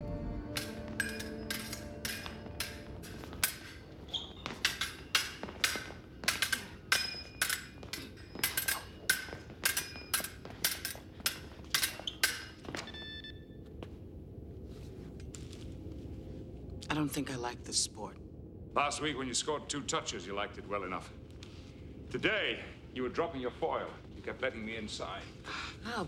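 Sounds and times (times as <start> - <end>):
fencing foils clashing: 0.5 - 12.9.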